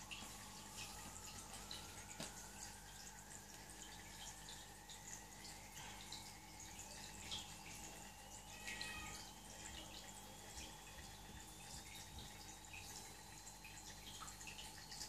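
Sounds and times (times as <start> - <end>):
steady hum: 0.0 - 15.0
water dripping and trickling: 0.0 - 15.0.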